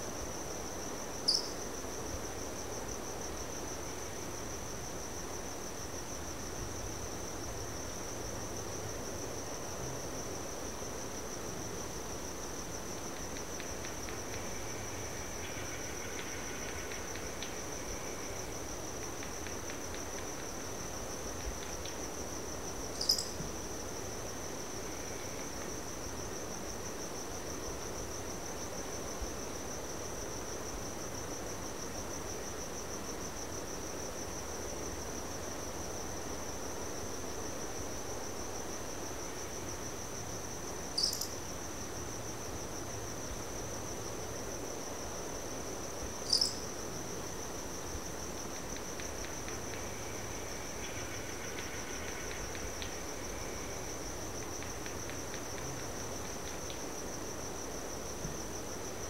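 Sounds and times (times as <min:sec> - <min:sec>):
crickets trilling: 0:00.0 - 0:59.0
sharp high chirps: 0:23.0 - 0:23.4, 0:41.0 - 0:41.3.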